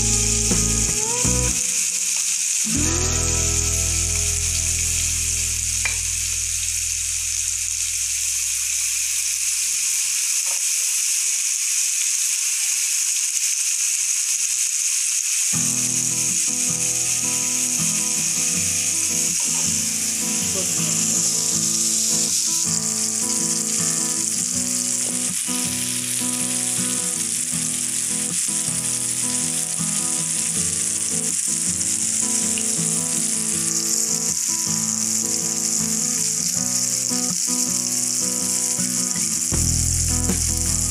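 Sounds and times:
background music: 0:00.0 - 0:01.6, 0:02.7 - 0:06.3
fish sizzling in oil: 0:00.0 - 0:40.9.

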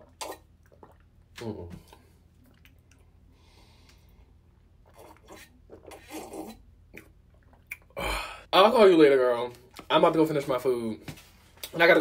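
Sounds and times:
person breathing: 0:03.3 - 0:04.3, 0:08.0 - 0:08.5
person swallowing: 0:05.7 - 0:08.4.

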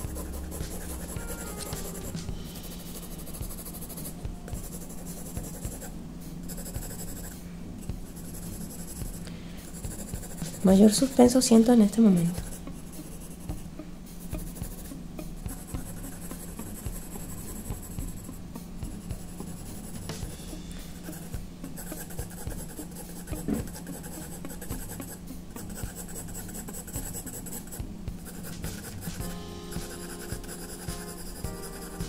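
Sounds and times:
faint low hum: 0:00.0 - 0:32.0
pencil scratching on paper: 0:00.0 - 0:32.0.

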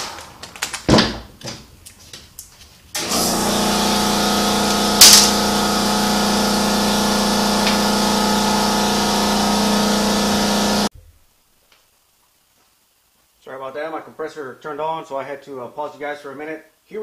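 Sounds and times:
air compressor humming: 0:03.0 - 0:10.9.

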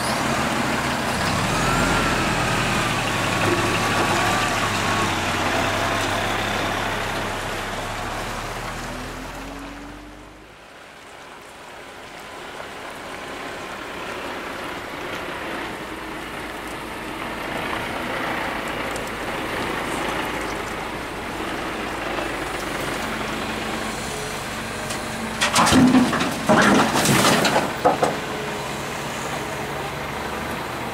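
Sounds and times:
excavator diesel engine: 0:00.0 - 0:30.9
concrete crashing into steel bed: 0:25.4 - 0:28.2.

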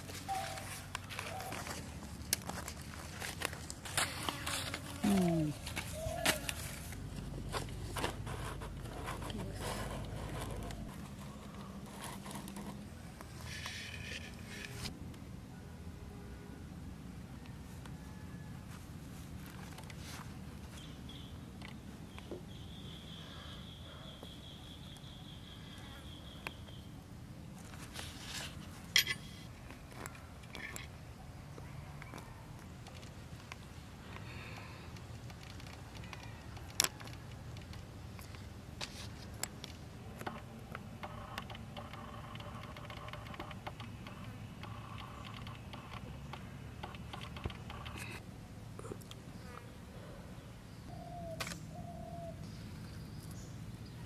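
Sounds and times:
hands handling eggs and leaves: 0:00.0 - 0:14.9
low outdoor background noise: 0:00.0 - 0:54.0.

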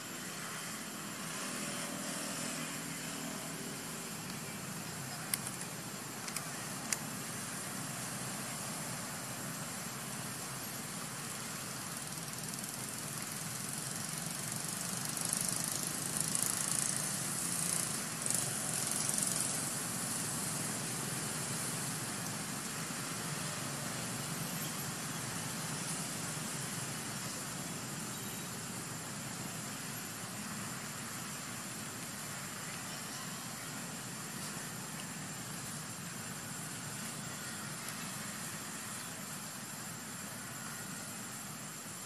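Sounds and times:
high hiss: 0:00.0 - 0:42.0.

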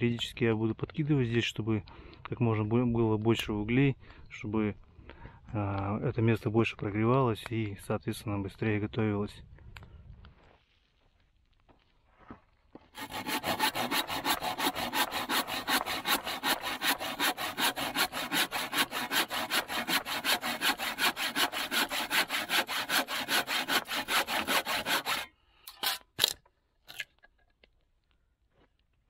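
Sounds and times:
hand saw cutting wood: 0:13.0 - 0:26.3.

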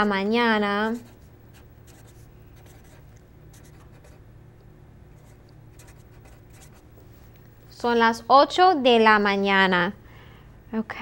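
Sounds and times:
faint low hum: 0:00.0 - 0:11.0
marker writing on paper: 0:00.8 - 0:04.2, 0:05.2 - 0:06.9.

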